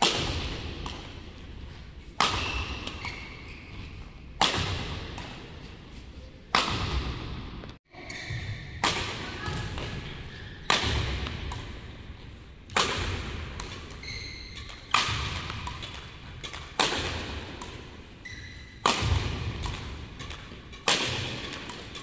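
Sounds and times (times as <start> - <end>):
badminton racket hitting shuttlecock: 0.0 - 5.8, 6.5 - 12.0, 12.7 - 22.0.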